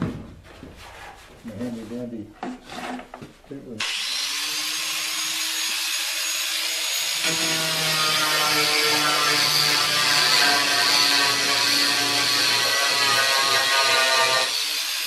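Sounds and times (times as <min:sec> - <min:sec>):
angle grinder whining: 0:03.8 - 0:15.0
grinder stripping paint from metal: 0:03.8 - 0:15.0.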